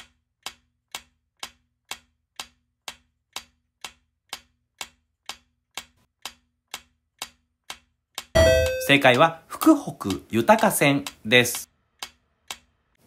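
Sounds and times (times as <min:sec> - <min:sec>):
clock-like ticking: 0:00.0 - 0:13.0.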